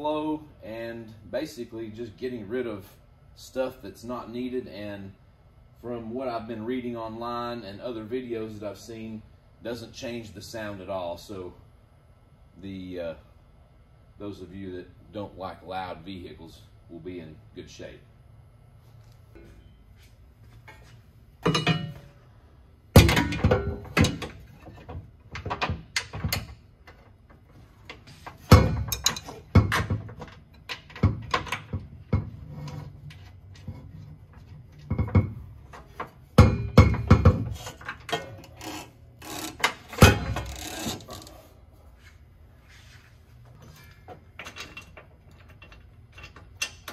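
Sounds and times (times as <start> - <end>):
metallic knocks of exhaust pipe: 34.9 - 38.3.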